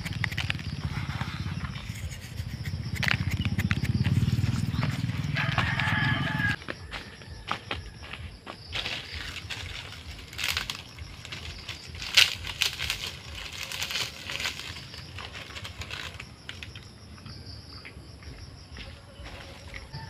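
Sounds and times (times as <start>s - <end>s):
dry sticks rustling and snapping: 0.0s - 0.8s, 1.6s - 6.4s, 8.8s - 16.9s
insects chirring: 0.0s - 20.0s.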